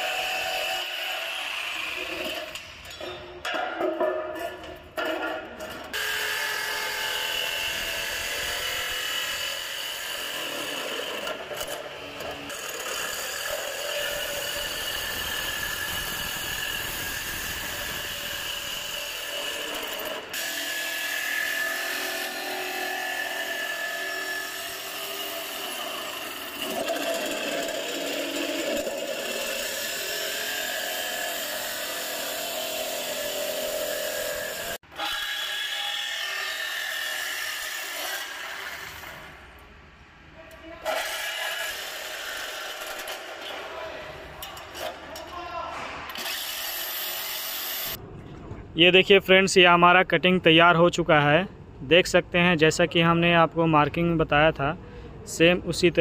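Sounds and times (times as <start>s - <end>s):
jigsaw cutting sheet metal: 0.0s - 2.7s, 5.9s - 39.4s, 40.8s - 43.5s, 46.1s - 48.0s.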